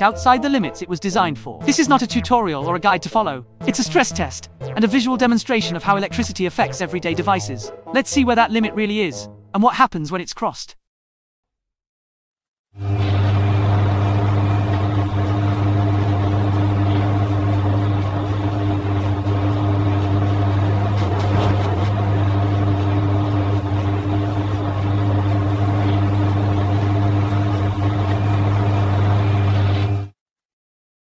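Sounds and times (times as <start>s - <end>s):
washing machine motor hum: 12.8s - 30.1s.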